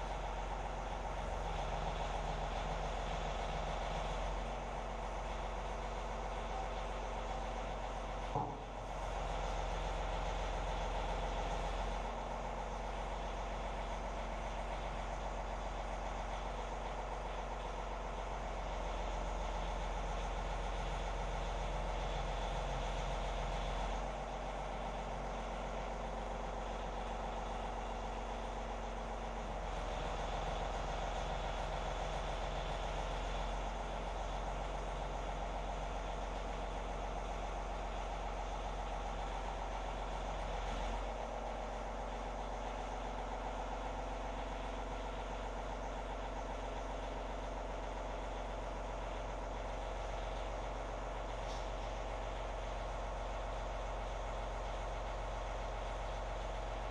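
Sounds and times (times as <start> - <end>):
tractor engine running: 0.0 - 56.9.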